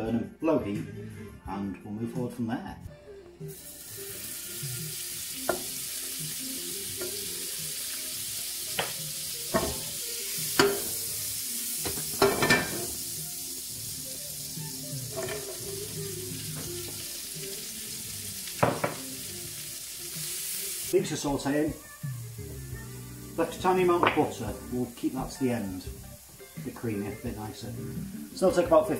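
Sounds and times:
butter sizzling in frying pan: 3.4 - 28.9
spatula knocking on pan: 18.6 - 19.1.

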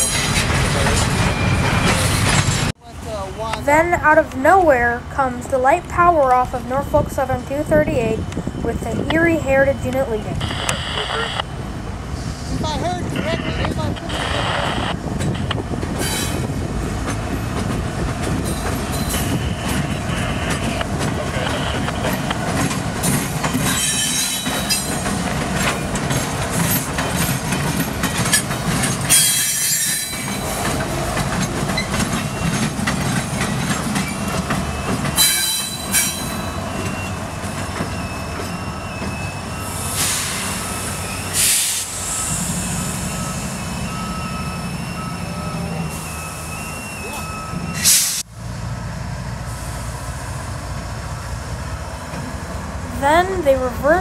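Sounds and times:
steel wheels squealing: 0.0 - 2.7, 16.0 - 16.6, 18.3 - 21.2, 22.0 - 48.2
diesel engines low rumble: 0.0 - 23.8, 24.5 - 54.0.

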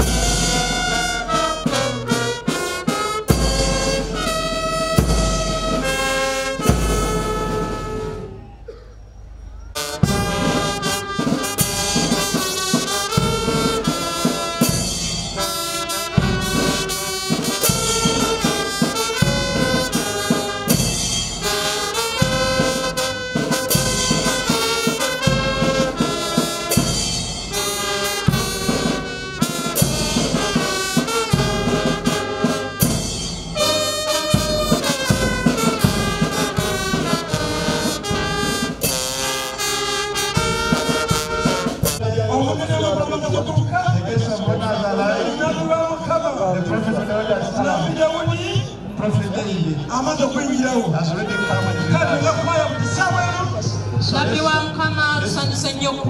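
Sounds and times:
steady drum beat: 0.0 - 8.3, 9.8 - 42.0
held brass notes: 0.0 - 8.7, 9.5 - 49.0, 49.8 - 56.0.

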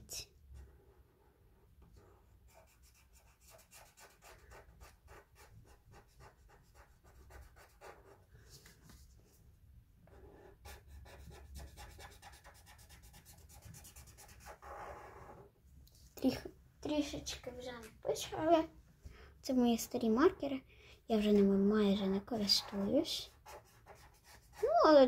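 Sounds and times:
marker scratching on paper: 1.9 - 9.3, 10.0 - 15.4, 22.3 - 25.0.

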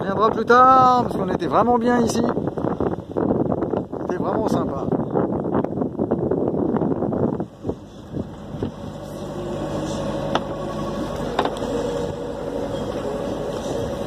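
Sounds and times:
boat diesel engine humming: 4.9 - 14.0.

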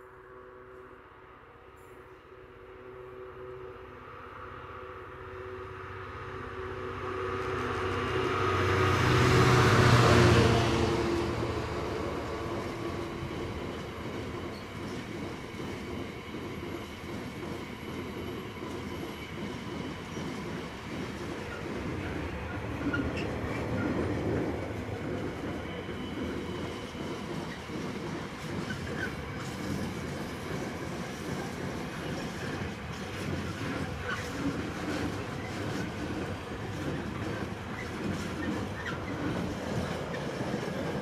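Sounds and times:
locomotive approaching: 2.3 - 41.0.

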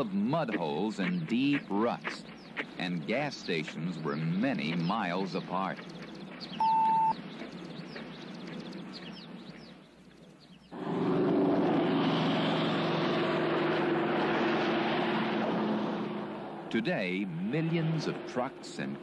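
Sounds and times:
faint bird chirps: 5.8 - 10.8.

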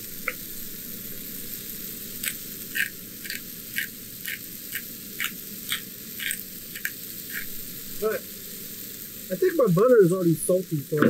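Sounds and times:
pepper grinder crunching clicks: 2.2 - 7.5.

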